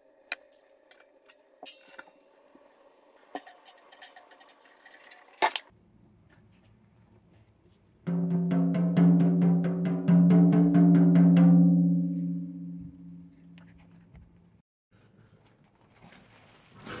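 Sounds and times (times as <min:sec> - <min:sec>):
tom drums struck with drumstick: 0:08.1 - 0:13.0.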